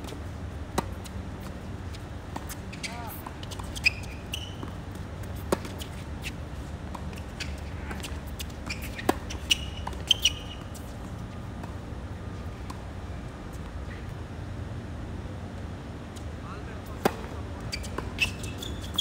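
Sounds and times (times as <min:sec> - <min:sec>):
tennis shoes squeaking: 0:00.8 - 0:12.9, 0:17.0 - 0:19.0.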